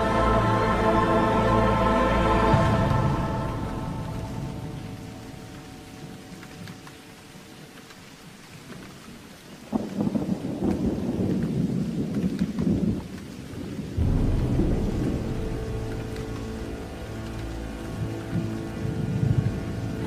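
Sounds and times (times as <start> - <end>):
soft music: 0.0 - 8.2, 14.0 - 20.0
rain: 0.0 - 20.0
thunder rumble: 2.4 - 6.2, 9.6 - 20.0.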